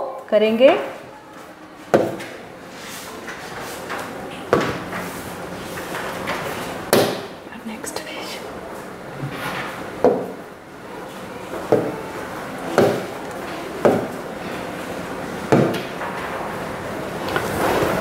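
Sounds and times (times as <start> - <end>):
sharp knocks: 15.5 - 15.9.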